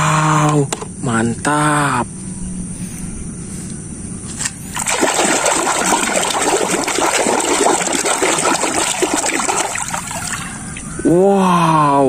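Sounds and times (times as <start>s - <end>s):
hand splashing through water: 4.8s - 10.5s.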